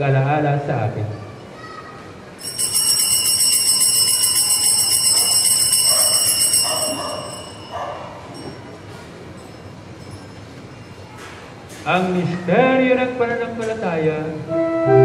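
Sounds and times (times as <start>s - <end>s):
small bells jingling: 2.4s - 11.2s.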